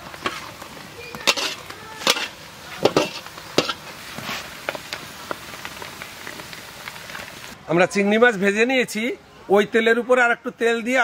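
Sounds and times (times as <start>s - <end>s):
metal ladle clanking on steel pot: 1.2s - 3.8s.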